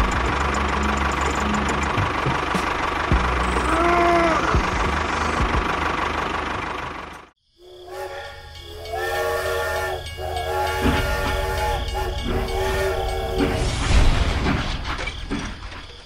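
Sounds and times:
train horn blasts: 7.8s - 13.7s.

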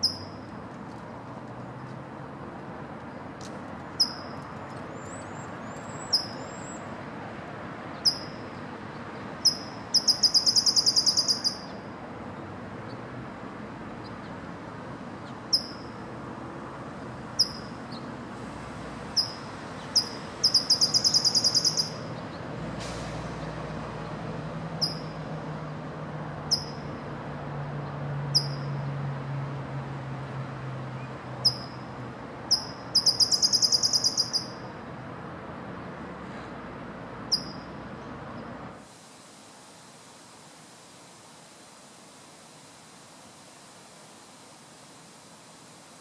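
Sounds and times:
bird chip notes: 9.5s - 11.7s, 20.0s - 22.0s.

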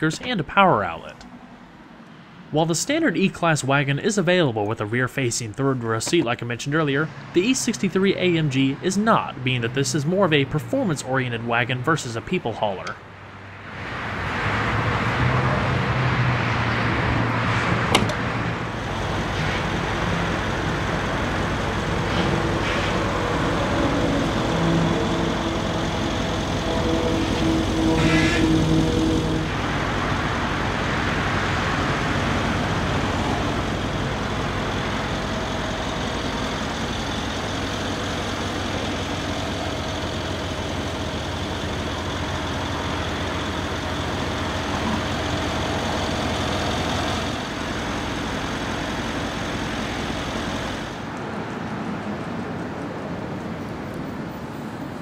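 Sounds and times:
car engine idling: 17.9s - 54.0s.

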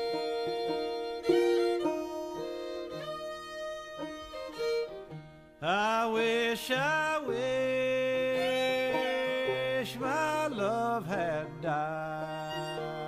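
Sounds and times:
fiddle holding slow notes: 0.0s - 13.0s
man singing: 5.6s - 13.0s.

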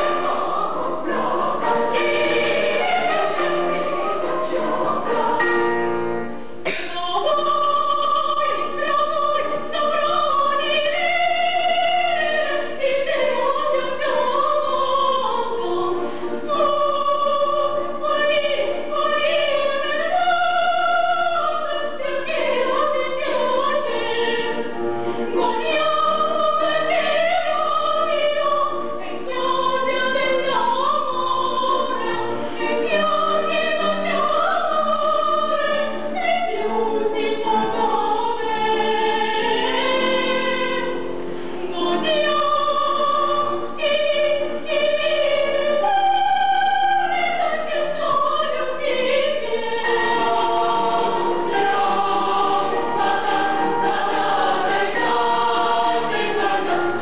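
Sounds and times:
women singing operatic duet: 0.0s - 57.0s.

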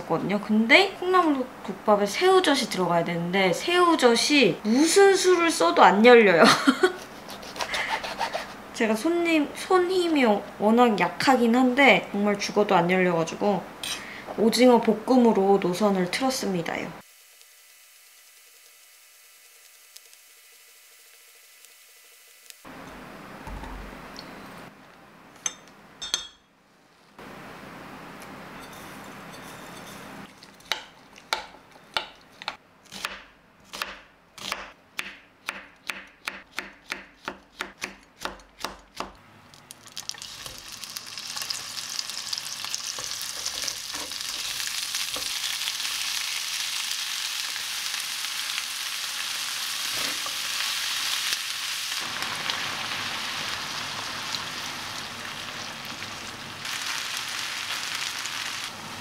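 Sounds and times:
onion sizzling in frying pan: 17.0s - 23.9s, 39.7s - 59.0s
spoon clinking in glass jug: 25.4s - 26.5s.

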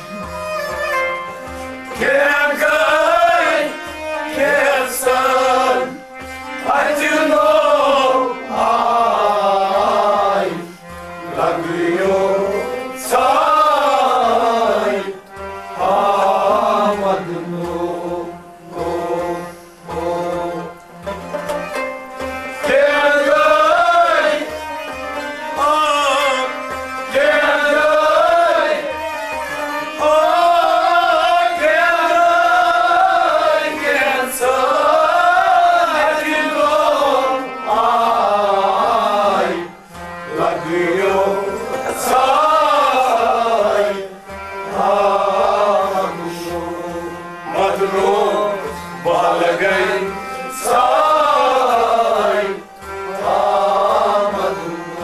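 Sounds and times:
man singing: 2.0s - 6.0s, 25.6s - 29.0s, 30.0s - 39.7s, 40.3s - 52.6s.

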